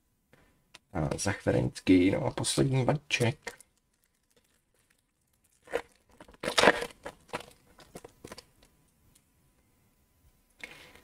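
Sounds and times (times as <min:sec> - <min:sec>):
foil wrapper tearing and crinkling: 0:03.5 - 0:08.5.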